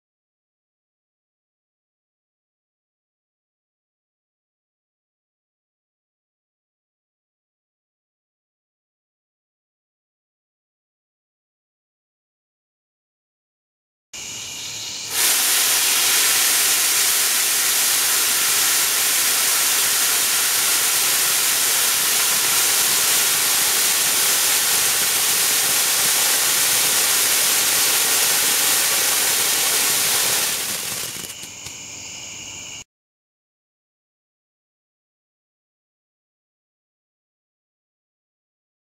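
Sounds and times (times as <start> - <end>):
firework fountain hissing: 15.0 - 31.8
small crackles: 22.0 - 31.8.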